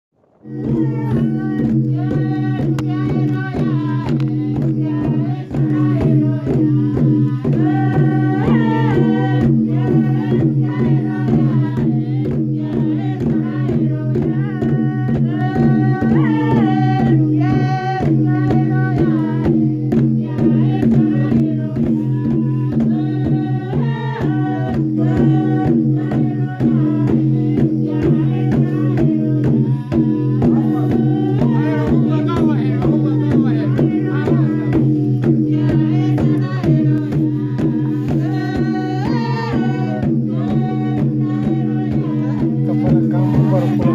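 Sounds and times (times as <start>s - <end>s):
person singing: 0.4s - 19.5s, 35.5s - 43.9s
hand drum beat: 0.4s - 43.9s.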